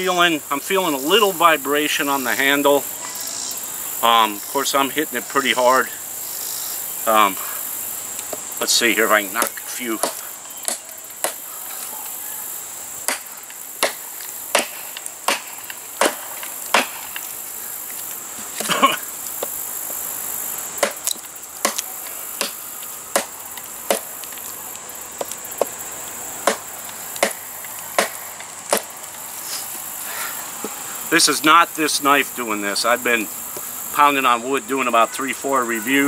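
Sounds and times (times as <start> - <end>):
machete chopping into log: 9.4 - 11.4, 13.1 - 17.1, 20.8 - 23.3, 23.9 - 24.1, 26.4 - 27.4, 28.0 - 28.9.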